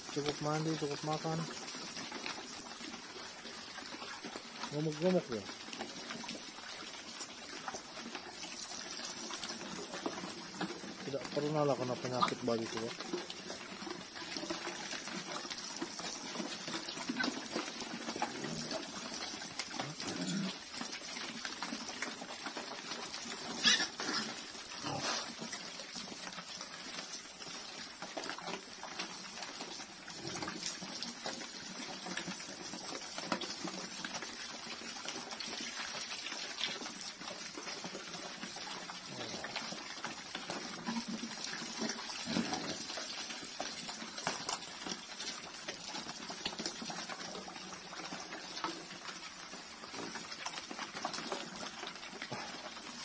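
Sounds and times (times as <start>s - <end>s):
pigs eating from a trough: 0.0s - 53.0s.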